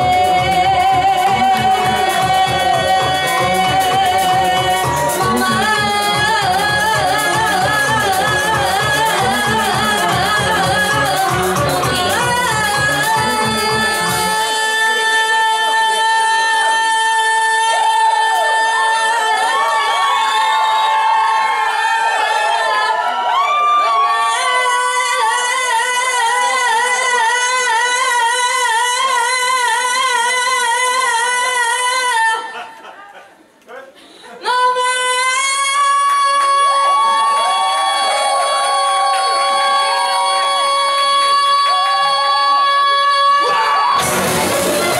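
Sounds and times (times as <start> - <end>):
fast steady beat: 0.0 - 14.6, 44.0 - 44.9
fiddles playing: 0.0 - 14.6, 44.0 - 44.9
woman singing long held note: 0.0 - 19.9
woman singing into a microphone: 0.0 - 32.8, 34.4 - 44.9.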